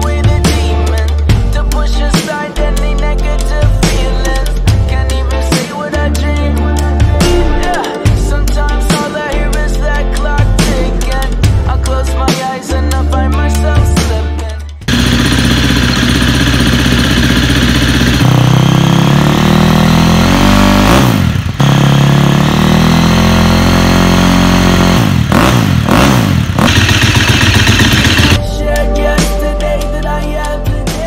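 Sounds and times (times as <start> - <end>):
motorcycle engine revving: 14.8 - 28.4.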